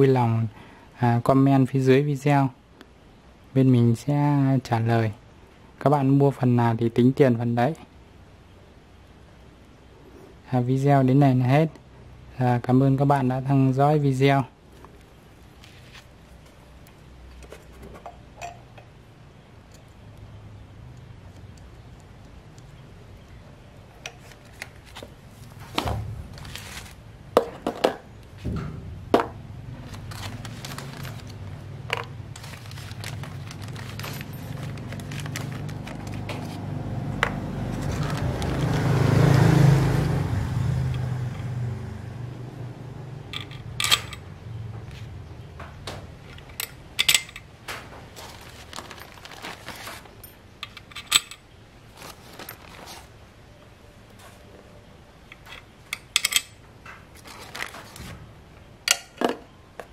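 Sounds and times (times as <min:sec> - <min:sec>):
metal parts clinking on bench: 0:30.1 - 0:36.2, 0:43.4 - 0:44.3, 0:46.3 - 0:47.5, 0:48.9 - 0:51.5, 0:55.3 - 0:56.6.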